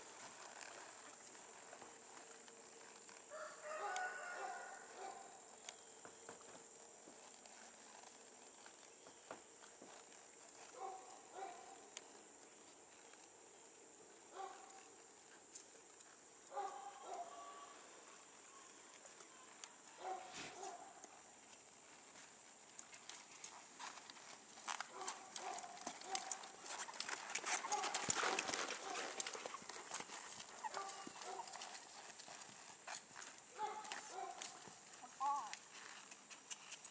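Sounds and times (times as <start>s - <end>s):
horse hoofbeats on sand: 20.0s - 36.9s.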